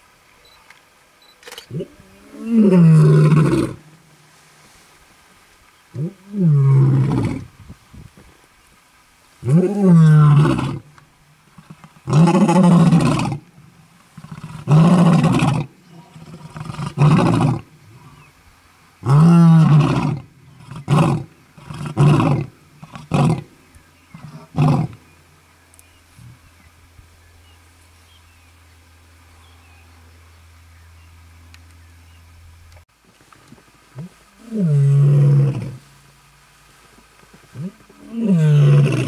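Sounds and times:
lion roaring: 1.7 - 3.8, 11.6 - 13.4, 14.2 - 18.1, 19.0 - 23.5, 37.6 - 39.0.

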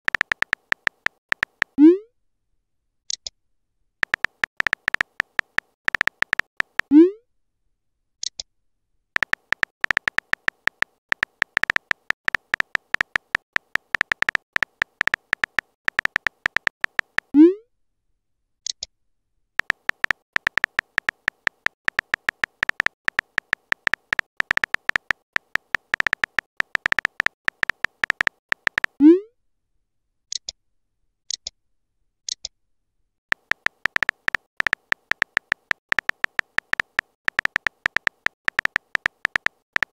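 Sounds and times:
keyboard tap beeps: 0.0 - 1.9, 4.0 - 7.0, 9.2 - 17.3, 19.6 - 29.0, 33.3 - 39.9.

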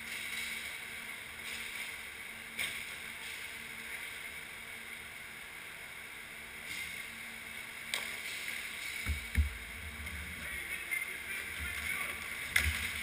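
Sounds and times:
distant hockey play: 7.9 - 13.0.

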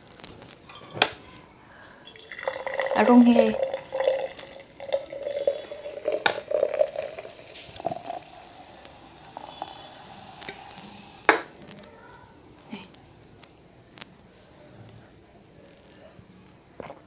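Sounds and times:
drink pouring into glass: 2.0 - 11.7.

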